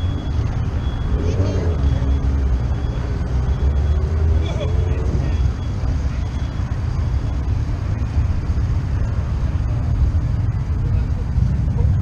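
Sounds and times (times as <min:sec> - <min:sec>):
motorcycle engines rumbling: 0:00.0 - 0:12.0.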